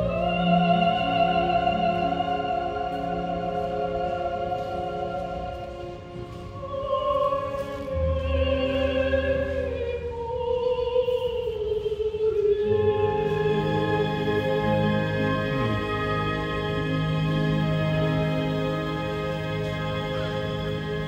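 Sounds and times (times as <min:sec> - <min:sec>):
sustained low notes: 0:14.7 - 0:18.0
slow wavering melody note: 0:14.9 - 0:17.3.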